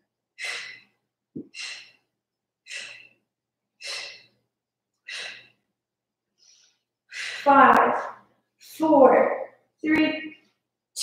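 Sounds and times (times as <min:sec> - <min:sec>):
woman exhaling sharply: 0:05.1 - 0:05.5.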